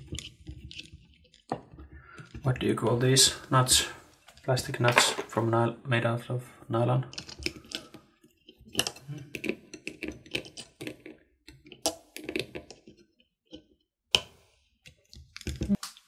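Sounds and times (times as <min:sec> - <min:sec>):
small plastic parts clicking: 0:07.1 - 0:16.0.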